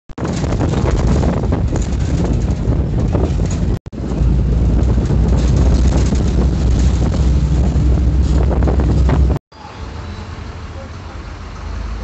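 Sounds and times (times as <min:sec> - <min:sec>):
vehicle cabin rumble: 0:00.2 - 0:09.4.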